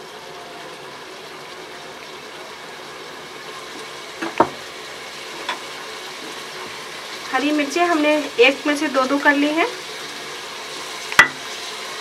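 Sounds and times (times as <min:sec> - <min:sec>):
gravy simmering with soft hiss: 0:00.0 - 0:12.0
sharp knocks: 0:11.2 - 0:11.4.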